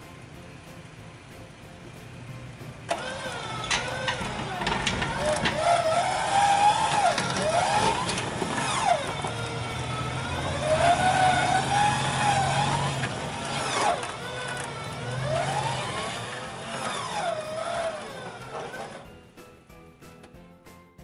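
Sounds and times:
engine revving: 0:02.9 - 0:19.0.

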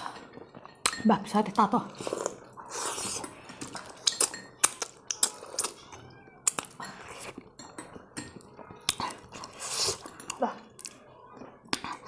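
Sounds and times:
person chewing food: 0:02.0 - 0:11.0.

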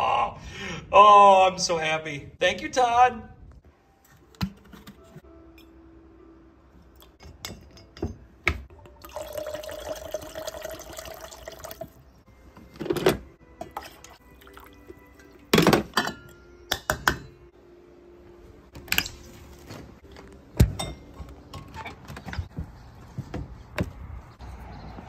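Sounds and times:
bottles and glass knocking and clinking: 0:07.2 - 0:11.1, 0:15.1 - 0:17.4, 0:20.6 - 0:22.5
liquid pouring into a steel tumbler: 0:09.0 - 0:11.9.

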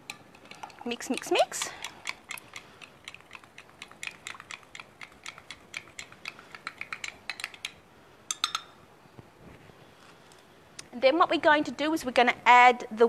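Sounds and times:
metal spoon clinking in glass jug: 0:08.3 - 0:08.7.

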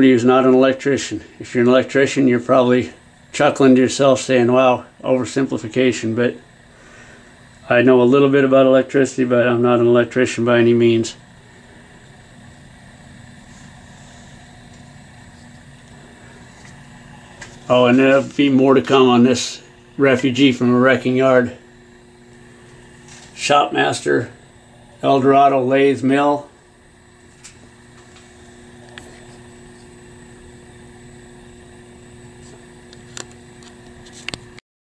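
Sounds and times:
electric motor humming: 0:00.3 - 0:34.6
small click: 0:32.9 - 0:34.6.

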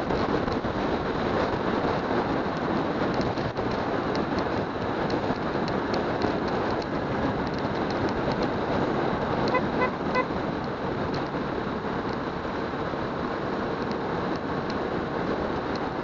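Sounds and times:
wind and road noise: 0:00.0 - 0:16.0
vehicle horn tooting: 0:09.5 - 0:10.4.

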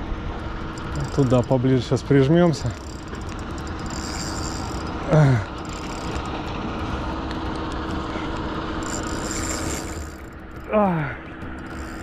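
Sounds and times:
boat motor humming: 0:00.0 - 0:12.0
man grunting: 0:05.1 - 0:05.5.

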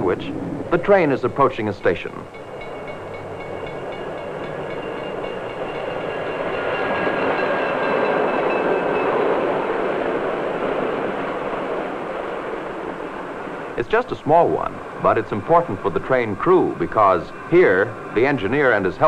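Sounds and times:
passenger train passing: 0:00.0 - 0:19.0
steady high tone: 0:00.7 - 0:09.7.

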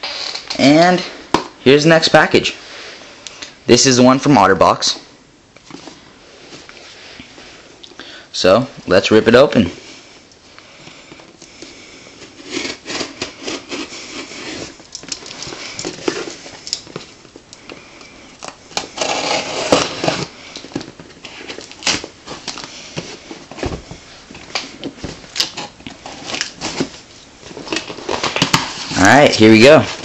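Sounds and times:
tape crackling: 0:10.2 - 0:30.0
knife slitting packing tape: 0:12.2 - 0:16.9, 0:18.8 - 0:20.3.

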